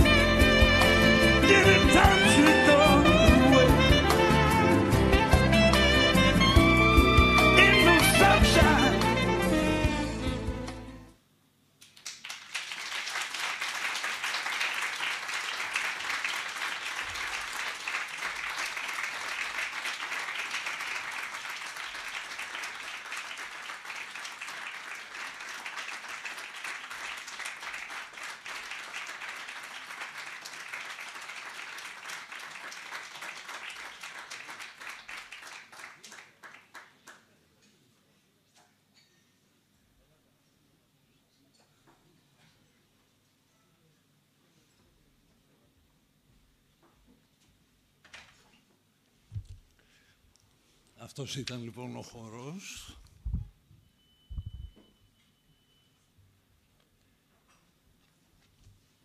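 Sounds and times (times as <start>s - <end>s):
audience clapping: 11.8s - 37.4s.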